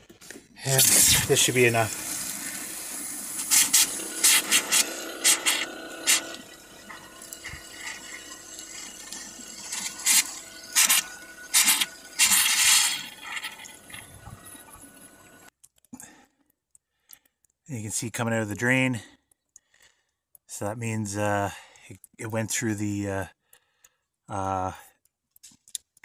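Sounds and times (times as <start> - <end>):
liquid pouring down sink drain: 0.6 - 15.5
sharp clicks and knocks: 25.0 - 26.0.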